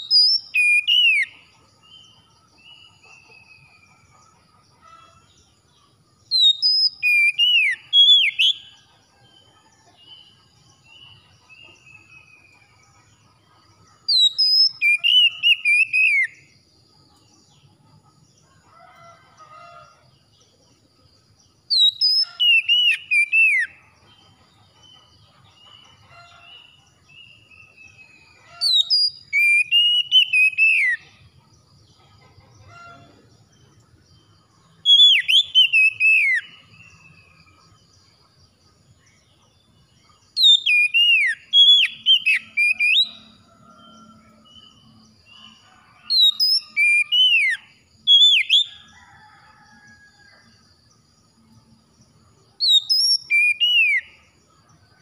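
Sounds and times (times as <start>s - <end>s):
bird singing whistled phrases: 0.0s - 1.3s, 6.3s - 8.6s, 14.1s - 16.3s, 28.6s - 31.0s, 40.4s - 43.2s, 46.2s - 48.7s, 52.6s - 54.1s.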